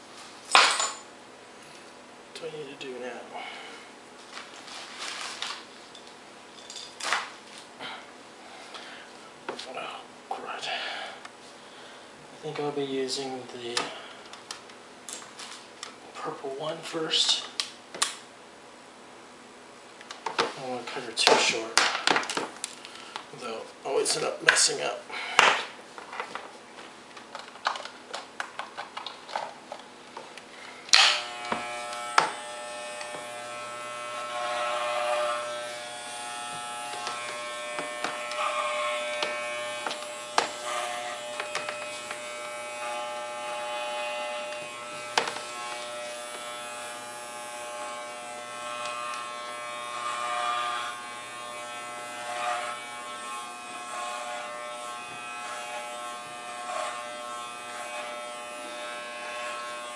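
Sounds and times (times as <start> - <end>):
pet clipper buzzing: 13.6 - 16.0, 20.0 - 26.3, 27.1 - 59.9.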